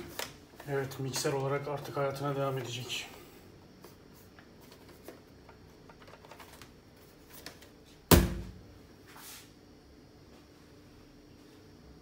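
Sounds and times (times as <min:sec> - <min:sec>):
mixer thumping on floor: 0:08.1 - 0:08.6
soft brush on floor: 0:09.0 - 0:09.6.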